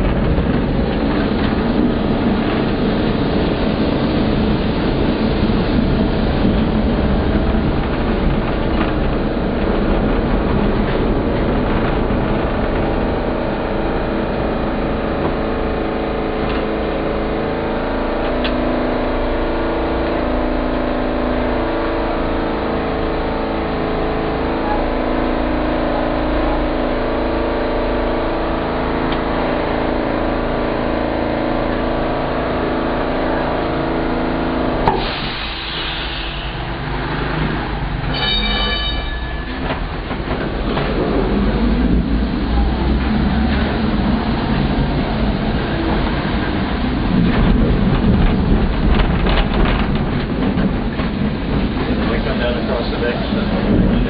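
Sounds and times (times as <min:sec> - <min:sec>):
tram rumble and motor hum: 0:00.0 - 0:54.0
high ringing tone: 0:38.1 - 0:39.6.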